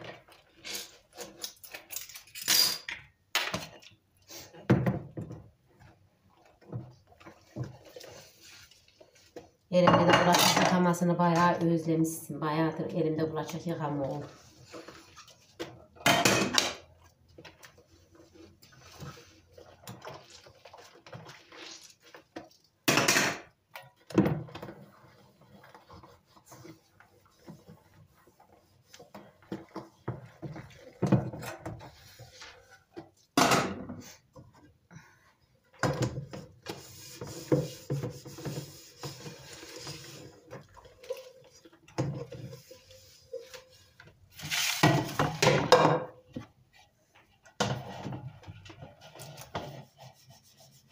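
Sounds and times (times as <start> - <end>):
dishes sloshing in soapy water: 16.8 - 33.4, 35.7 - 45.7.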